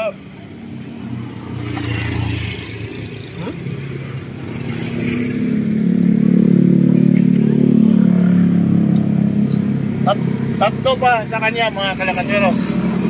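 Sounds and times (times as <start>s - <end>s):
motor scooter passing: 0.6s - 10.0s.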